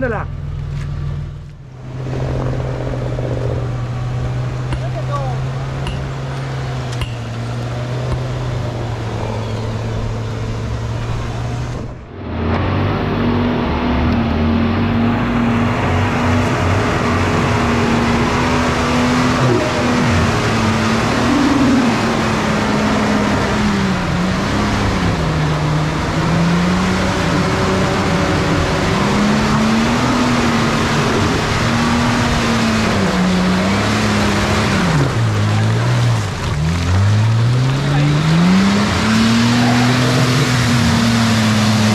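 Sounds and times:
truck engine revving: 0.0s - 41.9s
tyres churning mud: 14.4s - 41.9s.

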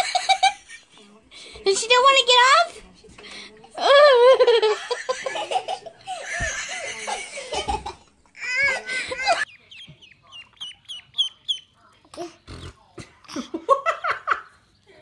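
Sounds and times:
children laughing and squealing: 3.8s - 9.6s
ducklings peeping: 9.4s - 12.8s.

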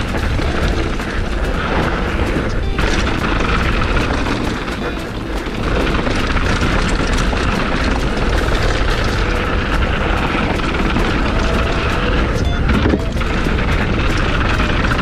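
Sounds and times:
bike rattling: 0.0s - 15.0s
tyres crunching over stones: 0.0s - 15.0s
wind rush on microphone: 0.0s - 15.0s.

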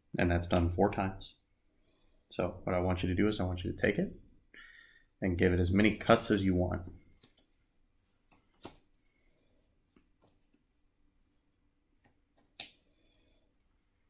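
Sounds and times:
playing cards tapping and clicking: 8.2s - 9.0s, 9.8s - 10.7s, 12.0s - 12.8s.

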